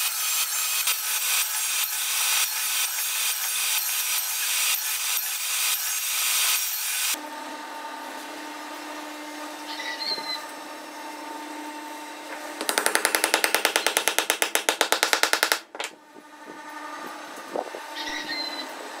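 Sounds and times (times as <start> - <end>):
hammer tapping wood: 12.6 - 16.0.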